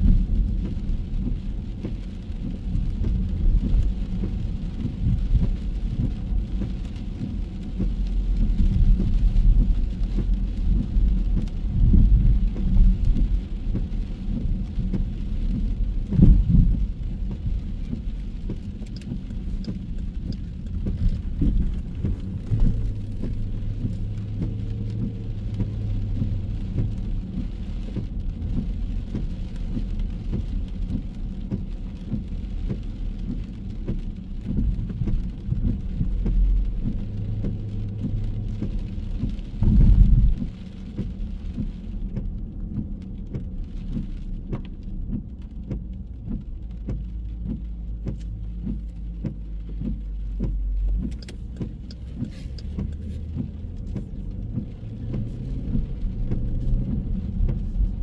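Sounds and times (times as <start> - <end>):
rain: 0.0 - 58.0
street traffic rumble: 0.0 - 58.0
passing vehicle hum: 31.3 - 44.6.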